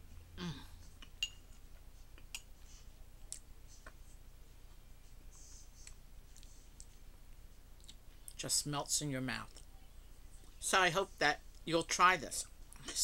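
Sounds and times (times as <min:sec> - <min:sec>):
metal spoon clinking on bowl: 0:01.2 - 0:01.5.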